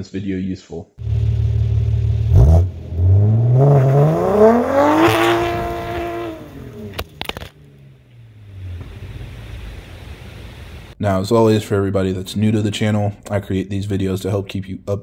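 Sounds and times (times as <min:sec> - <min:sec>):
car exhaust revving: 0:01.0 - 0:11.0
exhaust cracks: 0:01.0 - 0:11.0.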